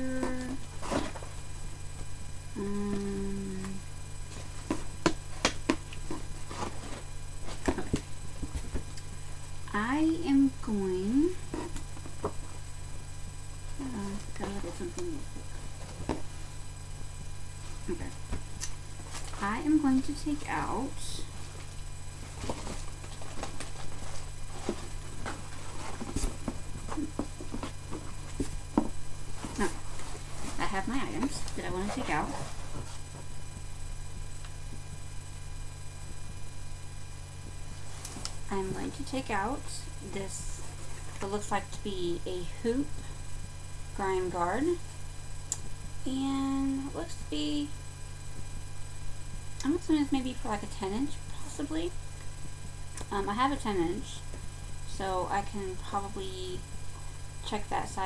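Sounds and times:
woman humming: 0.0 - 0.6, 2.5 - 3.9, 13.8 - 15.3, 26.8 - 27.4
low electrical hum: 0.0 - 58.0
hands rummaging in cardboard box: 22.2 - 33.0.

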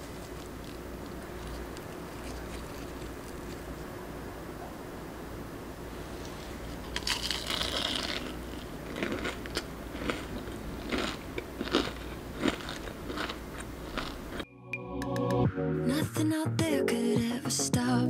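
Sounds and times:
chewing: 0.0 - 3.7, 6.2 - 14.4
crunchy bites: 6.8 - 14.4.

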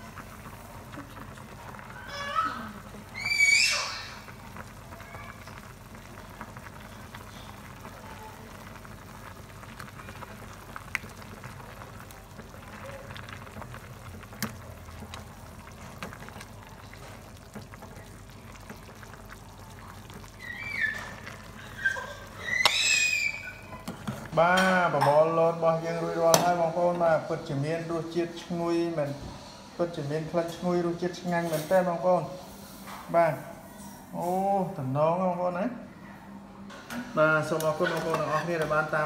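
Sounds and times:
liquid pouring: 3.9 - 22.6
short high calls: 21.9 - 23.8.

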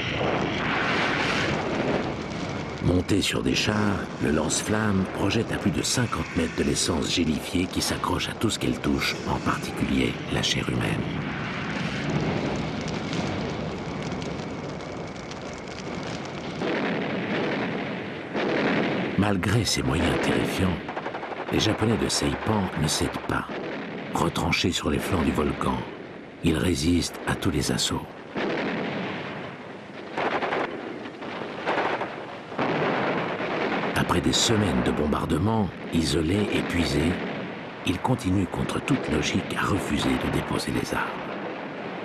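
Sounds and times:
flamethrower roaring and crackling: 0.0 - 26.4
rumbling explosions: 0.0 - 42.0.

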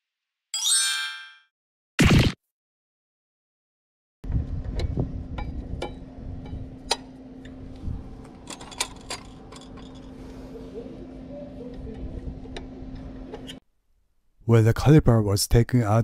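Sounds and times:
steady low hum: 4.3 - 13.6.

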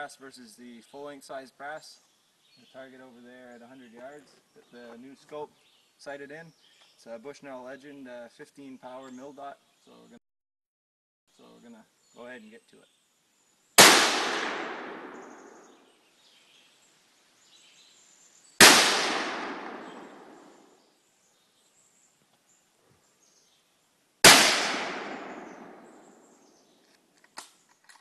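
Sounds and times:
rifle shots with echo: 13.8 - 15.8, 18.6 - 20.7, 24.2 - 26.4.

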